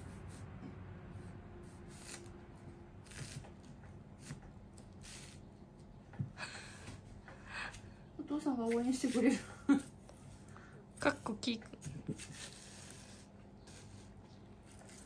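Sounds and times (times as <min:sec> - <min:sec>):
knife cutting watermelon crackles: 0:01.6 - 0:05.5, 0:11.4 - 0:15.0.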